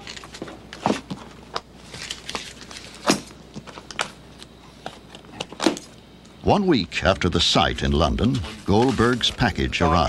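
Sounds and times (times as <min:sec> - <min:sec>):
paper crinkling: 0:01.8 - 0:03.1, 0:08.3 - 0:09.6.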